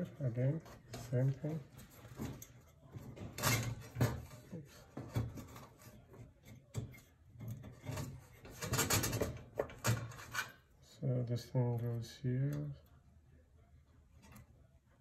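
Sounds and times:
rubbing and handling noise: 0:00.0 - 0:11.0
parts knocking against sheet metal: 0:06.8 - 0:10.4.

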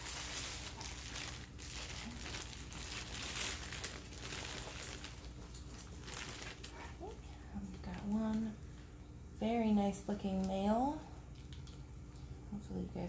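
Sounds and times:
plastic bag crinkling: 0:00.0 - 0:07.2.

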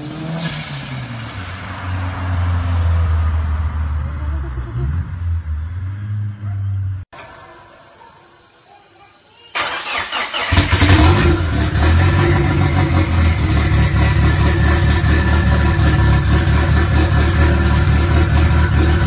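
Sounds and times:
car starter cranking: 0:09.6 - 0:12.9
car engine revving and idling: 0:10.5 - 0:19.0.

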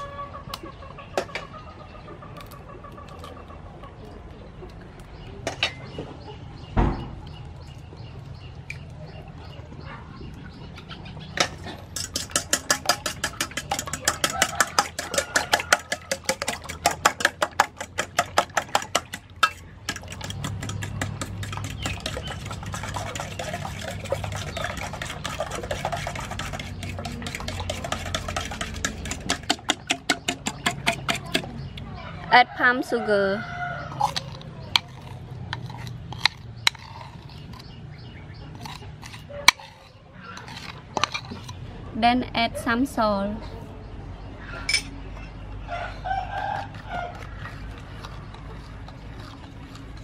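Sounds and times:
eggs cracked against steel pot: 0:11.4 - 0:31.6
soft stirring: 0:11.4 - 0:31.6, 0:38.5 - 0:41.6
fork beating eggs in metal pot: 0:11.4 - 0:31.8, 0:33.9 - 0:41.6.

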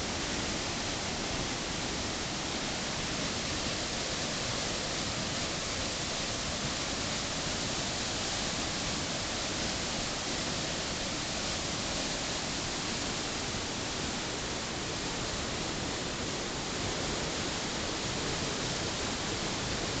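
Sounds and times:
floodwater rushing over rapids: 0:00.0 - 0:20.0.

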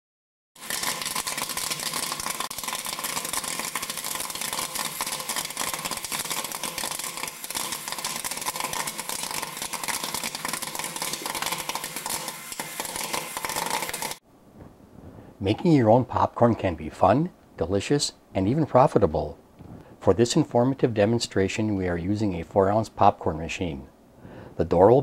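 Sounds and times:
popcorn popping: 0:00.6 - 0:14.2.

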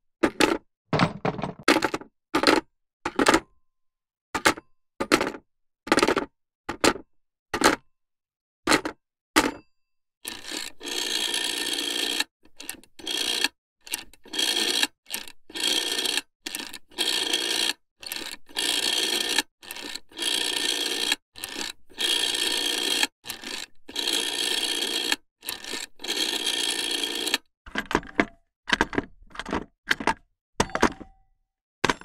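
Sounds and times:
rotary telephone dial whirring: 0:10.2 - 0:28.1.

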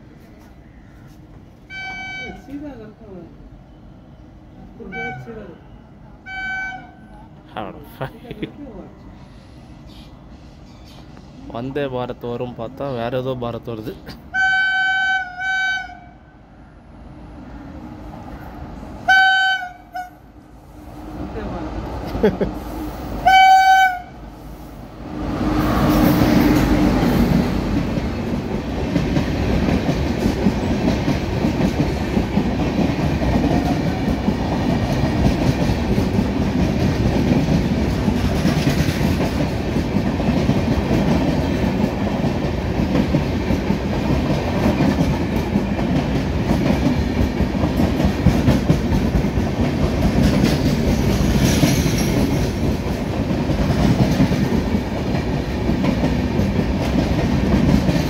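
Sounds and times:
train coaches rolling past: 0:00.0 - 0:58.0
locomotive horn blast: 0:01.7 - 0:02.5, 0:14.3 - 0:16.2, 0:19.1 - 0:20.2, 0:23.2 - 0:24.2.

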